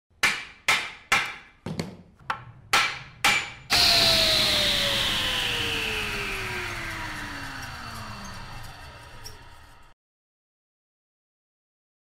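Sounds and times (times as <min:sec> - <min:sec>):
sharp knocks: 0:00.2 - 0:03.8
loud noise swell with falling tone: 0:03.7 - 0:10.0.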